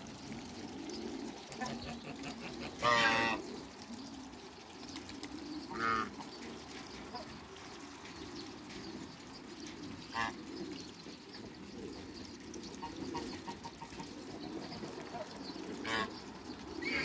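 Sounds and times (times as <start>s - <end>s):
goose honking: 1.6s - 3.4s, 5.7s - 6.1s.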